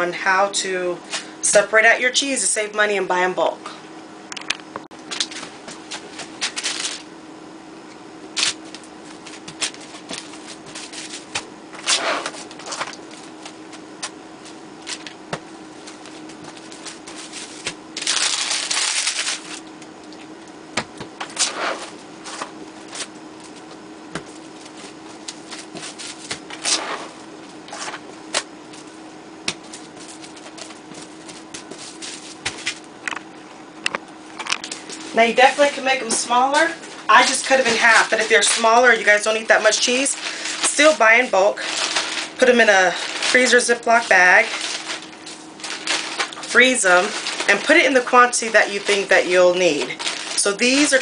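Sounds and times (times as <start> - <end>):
cling wrap crinkling: 5.1 - 7.1, 8.4 - 20.3, 34.6 - 51.0.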